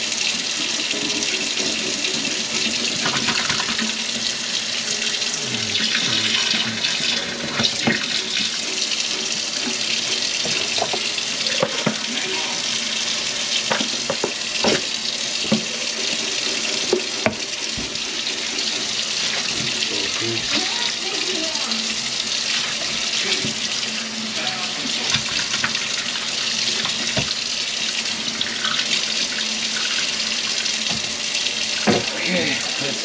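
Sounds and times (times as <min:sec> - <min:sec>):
faucet running into metal sink: 0:00.0 - 0:33.0
knocks and clunks at sink: 0:02.6 - 0:04.3, 0:13.7 - 0:15.8, 0:16.9 - 0:18.0, 0:26.8 - 0:27.4, 0:31.8 - 0:32.1.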